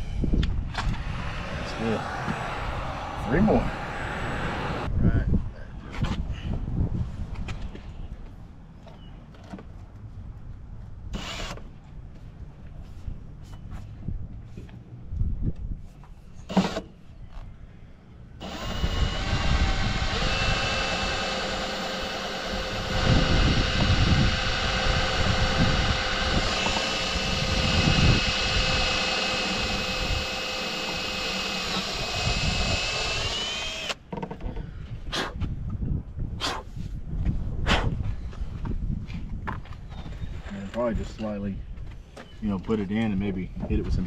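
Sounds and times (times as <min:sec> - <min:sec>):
cordless drill running: 0:00.8 - 0:04.9, 0:11.2 - 0:11.6, 0:16.5 - 0:16.8, 0:18.4 - 0:34.1.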